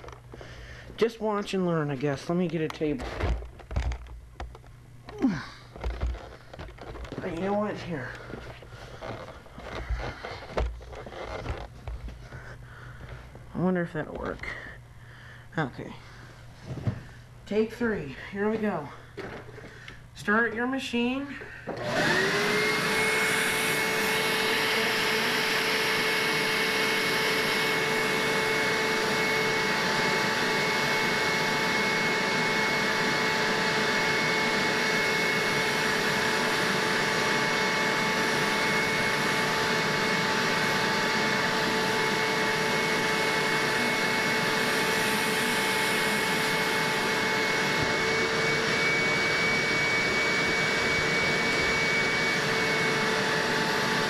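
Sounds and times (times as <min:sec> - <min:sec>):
carpet shampooer motor whining: 0:02.3 - 0:12.6, 0:21.3 - 0:54.0
hand tool rubbing fabric cushion: 0:05.2 - 0:12.6.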